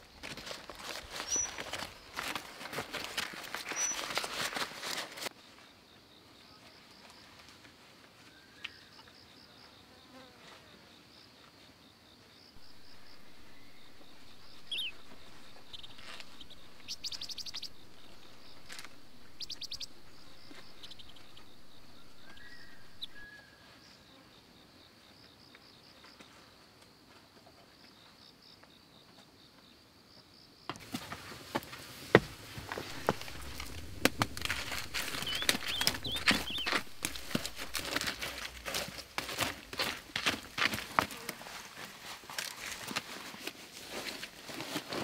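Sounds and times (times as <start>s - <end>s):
insects chirping: 0.0s - 7.2s, 10.9s - 27.0s, 27.8s - 41.3s
quick trills and clicks: 32.8s - 38.2s.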